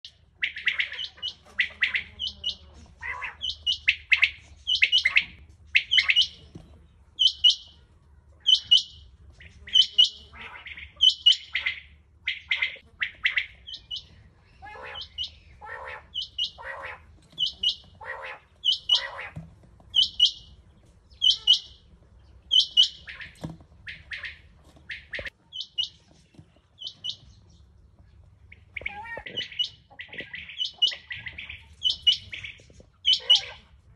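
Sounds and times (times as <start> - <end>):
quail calling: 0.1 - 6.6, 7.2 - 7.8, 8.4 - 27.4, 28.4 - 33.9.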